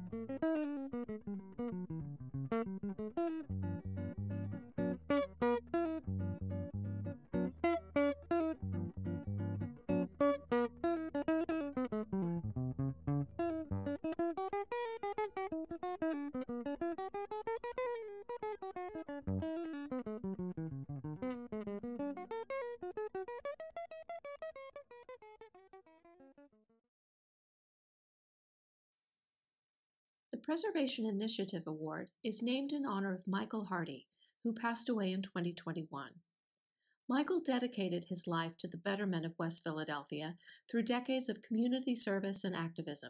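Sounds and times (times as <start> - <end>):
plucked guitar runs: 0.0 - 26.0
bass part: 3.4 - 11.2, 11.8 - 14.0, 19.2 - 21.5.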